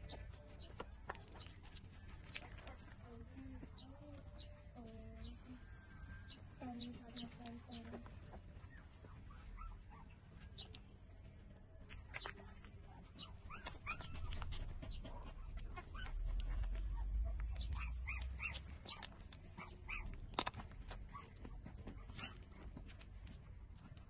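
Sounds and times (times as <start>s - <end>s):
puppies whimpering: 0.0s - 10.9s, 12.0s - 24.0s
low rumble: 14.0s - 19.4s.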